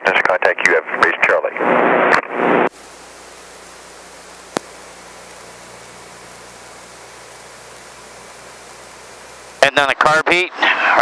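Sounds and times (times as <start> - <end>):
radio voice: 0.0 - 1.6
radio static hiss: 0.0 - 11.0.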